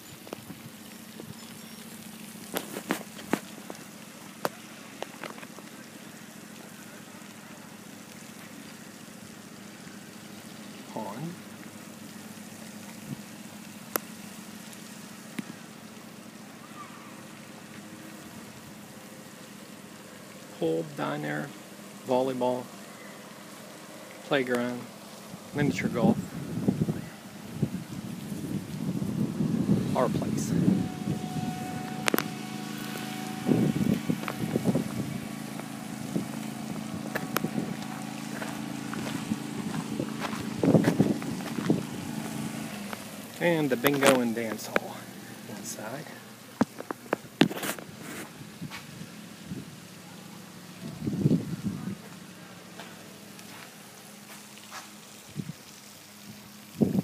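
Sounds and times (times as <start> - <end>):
small engine humming: 0.0 - 57.0
wind on microphone: 25.6 - 32.4, 33.2 - 35.3, 36.0 - 42.7, 50.8 - 52.0, 55.3 - 55.6, 56.3 - 57.0.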